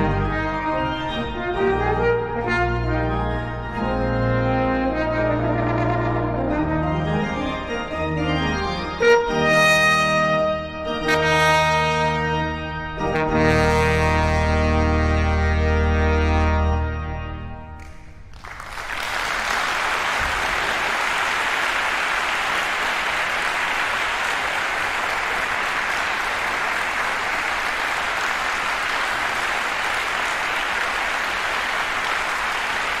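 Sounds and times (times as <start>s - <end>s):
trombone and pipe organ chord: 0.0s - 17.9s
audience applause: 18.2s - 33.0s.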